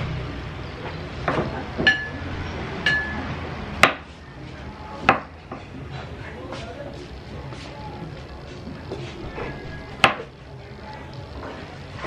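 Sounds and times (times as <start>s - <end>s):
ceramic dish clinking: 1.8s - 2.2s, 2.8s - 3.3s.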